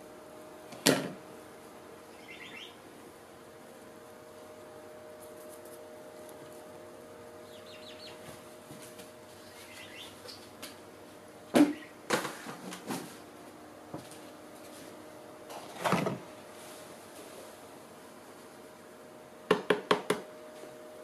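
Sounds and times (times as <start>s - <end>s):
steady hum: 0.0s - 21.0s
faint bird chirps: 2.0s - 2.8s, 7.4s - 8.2s, 9.4s - 10.4s.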